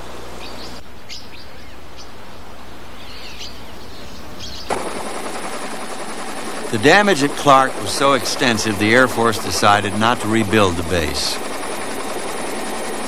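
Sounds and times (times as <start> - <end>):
small birds chirping: 0.3 - 4.7
aircraft rushing with high whine: 4.6 - 13.0.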